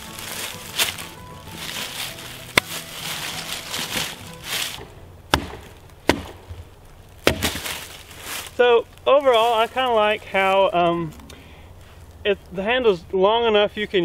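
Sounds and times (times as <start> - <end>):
background music: 0.0 - 6.7
axe chopping wood: 2.5 - 2.8, 3.7 - 7.9
sharp knock: 4.8 - 6.6.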